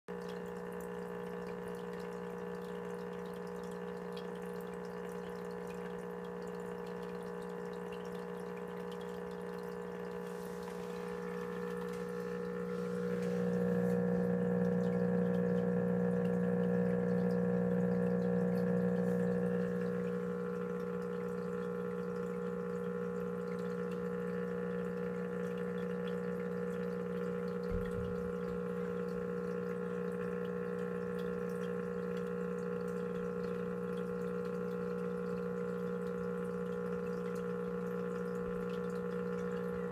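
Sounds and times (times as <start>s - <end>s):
aquarium equipment humming: 0.1s - 39.9s
water trickling: 0.1s - 39.9s.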